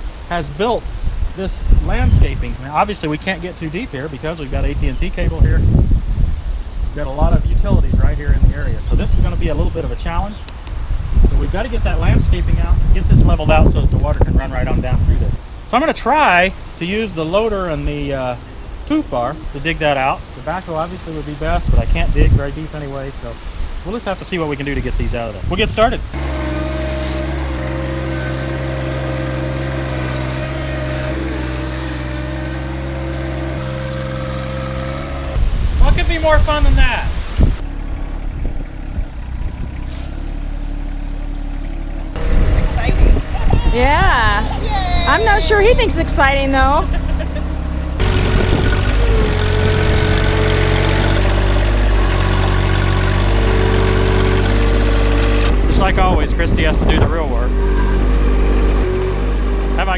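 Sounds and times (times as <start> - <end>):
diesel tractor engine running: 24.6 - 59.9
loader digging into dirt: 26.1 - 35.4, 46.9 - 56.0.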